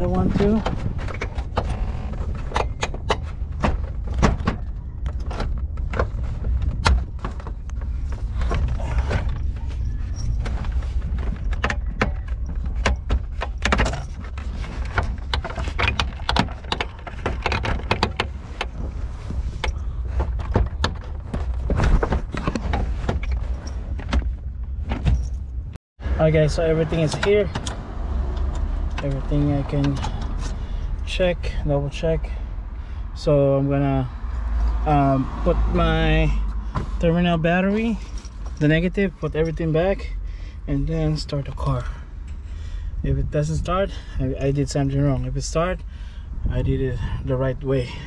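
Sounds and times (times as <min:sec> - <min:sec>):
steady low rumble: 0:00.0 - 0:48.0.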